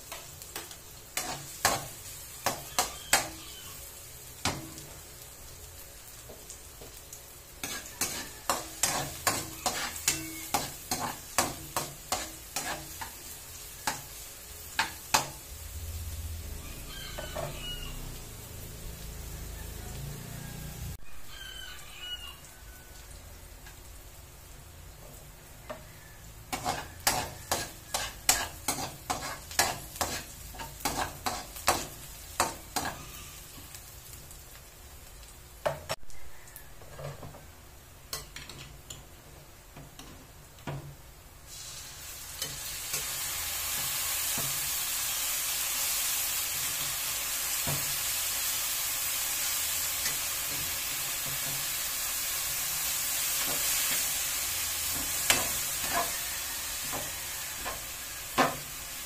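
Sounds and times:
loud steady sizzle: 0:00.0 - 0:59.0
metal spoon scraping a wok: 0:01.2 - 0:03.4, 0:07.6 - 0:13.1, 0:16.9 - 0:17.8, 0:26.5 - 0:33.7, 0:54.8 - 0:58.6.

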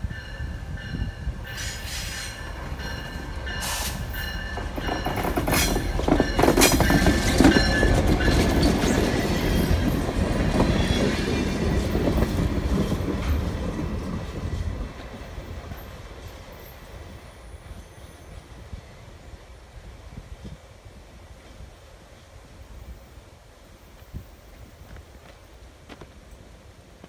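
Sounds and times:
train wheels clanking and squealing: 0:00.1 - 0:18.6.

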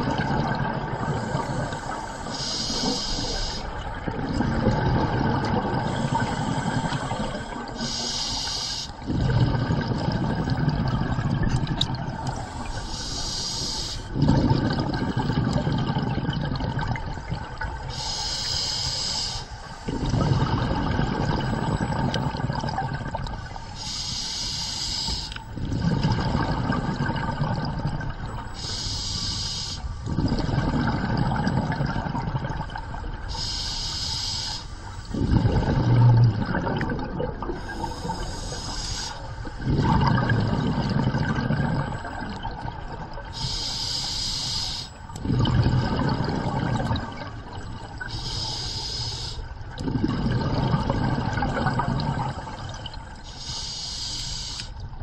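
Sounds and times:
regulator breathing hiss: 0:01.1 - 0:03.8, 0:05.9 - 0:09.0, 0:12.4 - 0:14.1, 0:17.9 - 0:19.9, 0:23.7 - 0:25.5, 0:28.5 - 0:30.0, 0:33.3 - 0:35.1, 0:37.6 - 0:39.3, 0:43.4 - 0:45.1, 0:48.1 - 0:49.5, 0:53.2 - 0:54.8
low bubbling underwater: 0:03.8 - 0:07.7, 0:09.1 - 0:12.4, 0:14.2 - 0:17.8, 0:25.6 - 0:28.4, 0:30.1 - 0:33.3, 0:35.1 - 0:38.0, 0:39.4 - 0:43.4, 0:45.2 - 0:48.1, 0:49.6 - 0:53.1.

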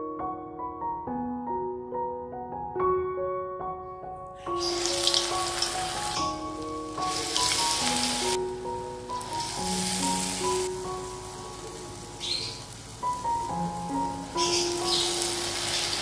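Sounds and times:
soft piano music: 0:00.0 - 0:16.0
batter deep-frying in hot oil: 0:04.6 - 0:16.0.

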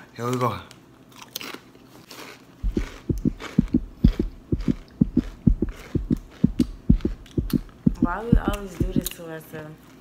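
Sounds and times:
tortilla chips being chewed: 0:00.3 - 0:07.8.

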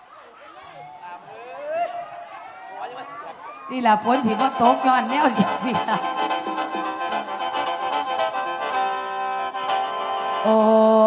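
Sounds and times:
mouth organ playing held chords: 0:03.9 - 0:10.8.

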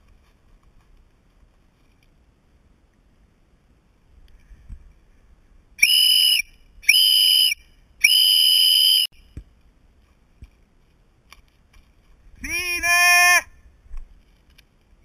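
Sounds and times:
whistle blasts: 0:05.8 - 0:09.3.

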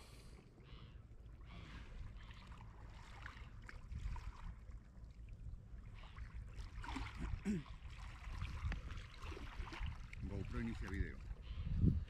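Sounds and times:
shallow water sloshing: 0:00.4 - 0:12.0
wind rumble on microphone: 0:03.4 - 0:12.0.

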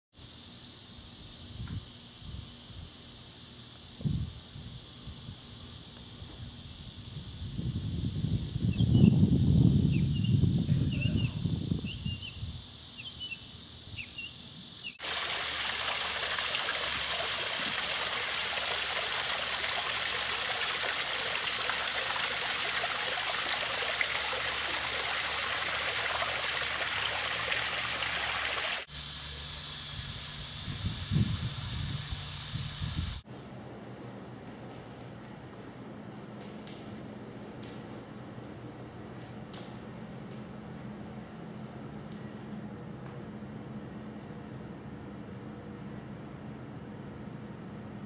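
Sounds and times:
waterfall splashing into pond: 0:15.0 - 0:28.9.

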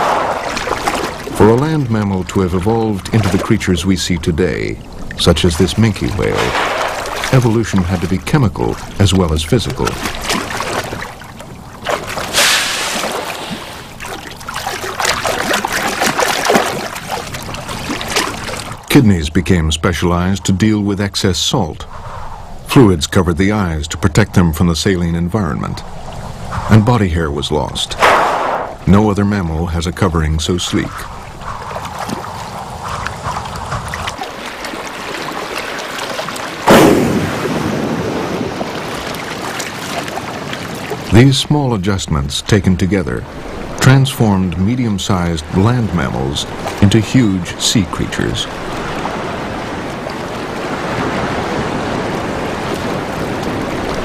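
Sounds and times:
sea water sloshing and splashing: 0:00.0 - 0:18.9, 0:25.3 - 0:54.0
whale blowing: 0:12.1 - 0:15.9, 0:28.0 - 0:28.8
rushing hiss: 0:12.3 - 0:13.9.

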